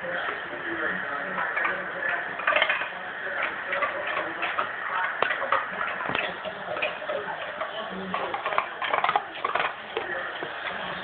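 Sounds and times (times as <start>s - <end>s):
dog claws clicking on floor: 2.4s - 10.8s.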